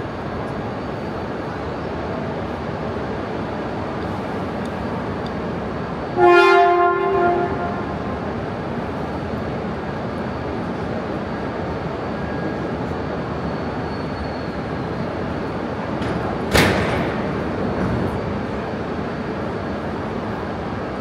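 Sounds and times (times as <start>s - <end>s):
train rumbling slowly: 0.0s - 21.0s
train horn blast: 6.2s - 8.1s.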